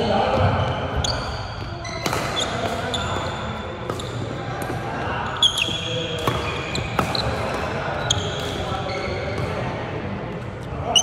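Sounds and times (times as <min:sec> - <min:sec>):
shoes squeaking on wooden court: 0:00.0 - 0:09.7
rackets striking shuttlecock: 0:01.9 - 0:04.8, 0:05.4 - 0:09.6.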